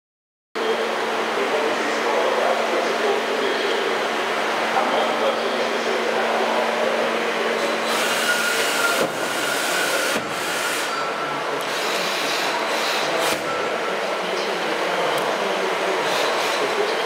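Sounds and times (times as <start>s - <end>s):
lathe mechanical whirring: 5.6s - 17.0s.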